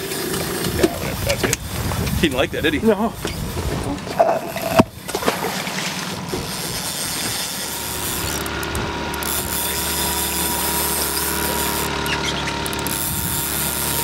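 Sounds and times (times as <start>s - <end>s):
fishing reel ratchet clicking: 6.3s - 14.0s.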